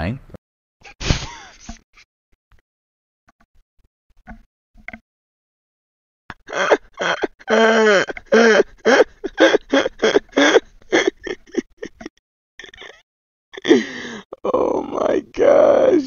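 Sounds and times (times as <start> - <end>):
man laughing hard: 6.3 - 13.0.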